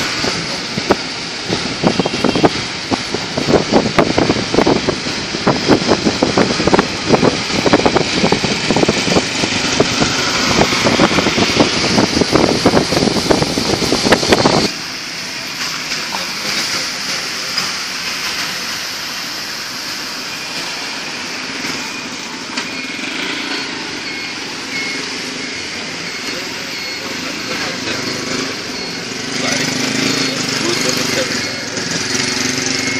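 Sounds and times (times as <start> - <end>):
engines running: 0.0 - 32.9
traffic hiss on wet road: 0.0 - 32.9
wind buffeting microphone: 0.1 - 14.7.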